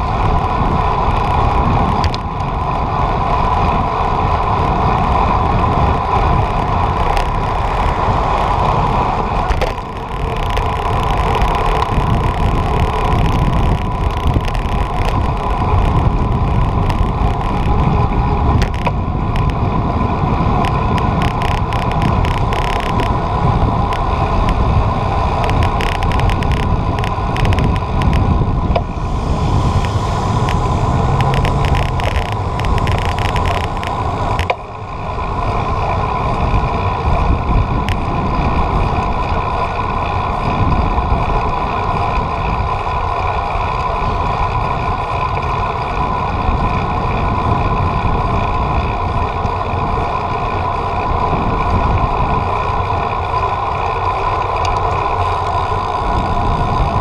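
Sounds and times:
low road rumble: 0:00.0 - 0:57.0
wind buffeting microphone: 0:00.0 - 0:57.0
steady hum: 0:20.6 - 0:38.2.

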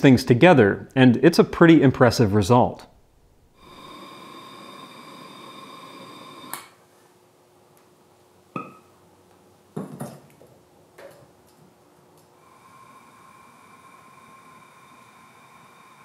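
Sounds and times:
torch flame hissing: 0:03.6 - 0:06.7, 0:12.4 - 0:16.0
glassy pings: 0:08.6 - 0:08.9.

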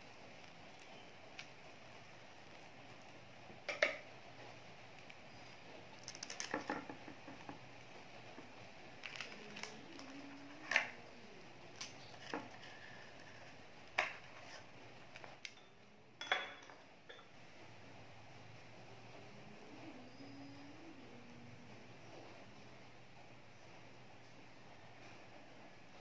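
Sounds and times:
kitchen utensils and dishes clinking: 0:15.5 - 0:17.4.

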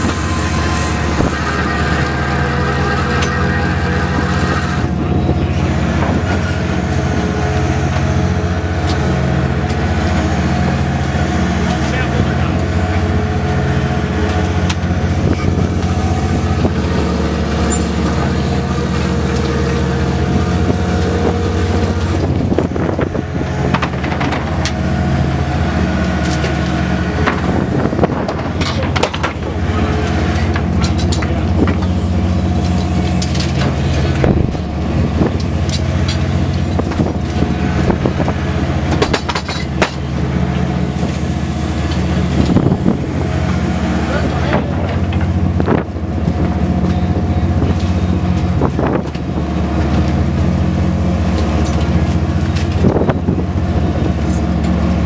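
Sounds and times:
boat engine running: 0:00.0 - 0:55.0
clanks and knocks: 0:22.0 - 0:24.8, 0:27.2 - 0:29.6, 0:30.4 - 0:32.1, 0:38.9 - 0:40.1.

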